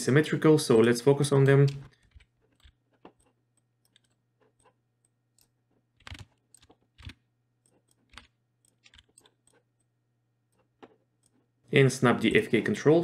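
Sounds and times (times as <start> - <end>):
keyboard keystrokes: 5.4 - 9.6.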